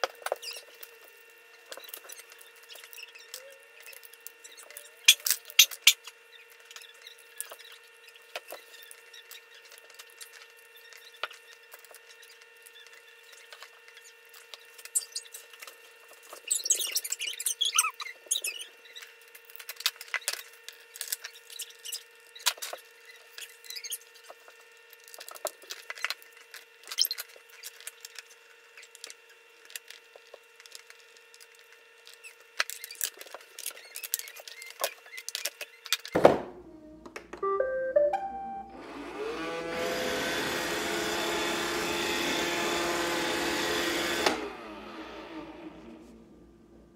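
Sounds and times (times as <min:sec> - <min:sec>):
short beeping tones: 0:37.4 - 0:38.8
robot vacuum motor whine: 0:38.7 - 0:46.6.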